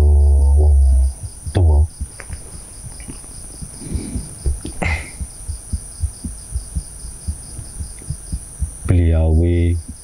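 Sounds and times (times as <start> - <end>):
crickets chirping: 0.0 - 10.0
soft low thumps: 0.0 - 10.0.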